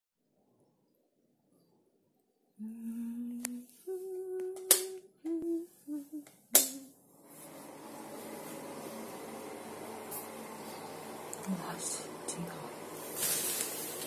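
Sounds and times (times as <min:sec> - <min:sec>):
person humming a tune: 0:02.6 - 0:07.0.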